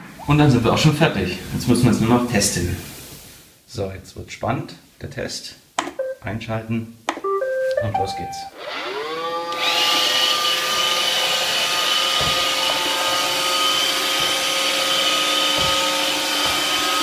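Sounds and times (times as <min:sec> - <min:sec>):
robot vacuum whining: 0:08.5 - 0:17.0.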